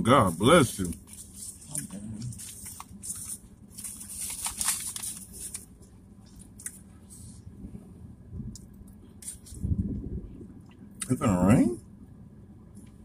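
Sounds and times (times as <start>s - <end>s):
paper wrapper crinkling: 0.5s - 5.8s.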